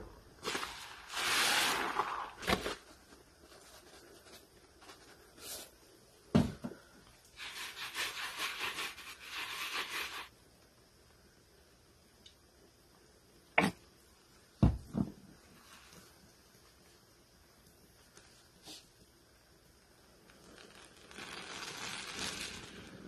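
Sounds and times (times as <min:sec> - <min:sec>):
suds fizzing crackle: 0:00.0 - 0:06.2, 0:15.4 - 0:23.0.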